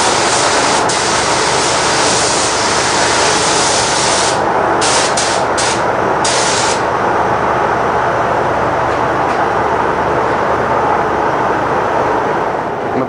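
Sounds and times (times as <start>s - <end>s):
paint spray gun hissing: 0.0s - 6.8s
loud rushing air: 0.0s - 7.1s.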